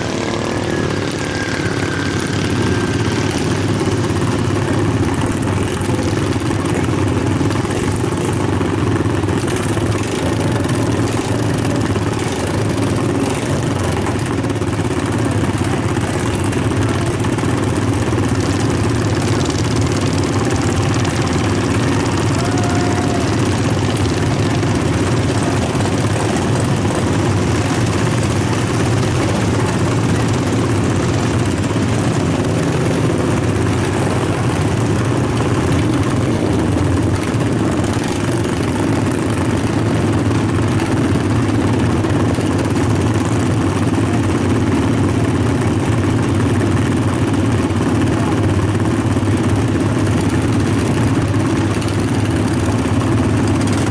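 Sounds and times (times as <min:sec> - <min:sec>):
small engines idling: 0:00.0 - 0:53.9.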